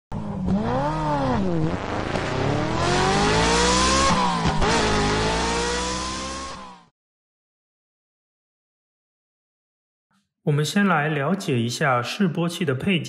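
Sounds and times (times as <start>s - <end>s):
car engine revving and accelerating: 0.1s - 6.9s.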